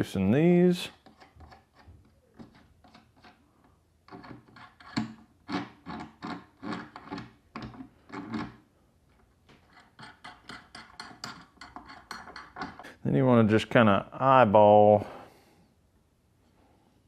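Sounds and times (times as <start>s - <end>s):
chisel rubbing and scraping on metal: 0.9s - 3.5s, 4.1s - 8.6s, 9.6s - 12.9s.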